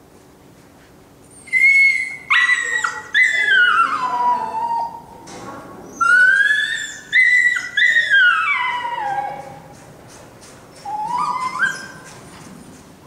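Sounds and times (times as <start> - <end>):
dog whining: 1.3 - 5.1, 5.9 - 9.8, 10.7 - 12.5.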